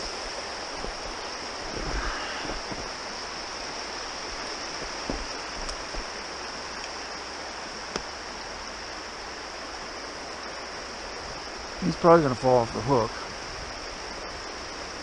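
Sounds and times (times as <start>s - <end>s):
stream rushing over rocks: 0.0s - 15.0s.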